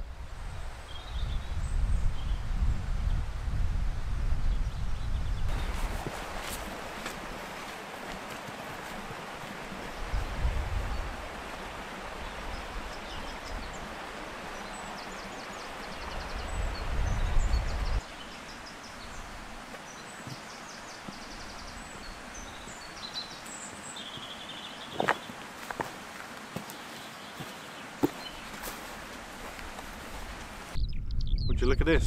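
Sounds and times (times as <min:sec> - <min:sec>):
wind buffeting microphone: 0:00.0 - 0:07.7, 0:08.7 - 0:15.0, 0:15.7 - 0:18.1, 0:29.4 - 0:32.0
small birds chirping: 0:04.5 - 0:32.0
footsteps on rocky ground: 0:05.5 - 0:11.9, 0:19.7 - 0:22.5, 0:23.4 - 0:30.6.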